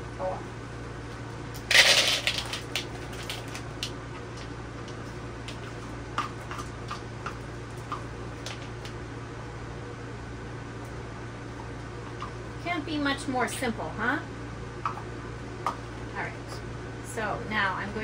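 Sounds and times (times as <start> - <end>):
steady low hum: 0.0 - 18.0
chocolate chips pouring into cup: 1.7 - 3.6.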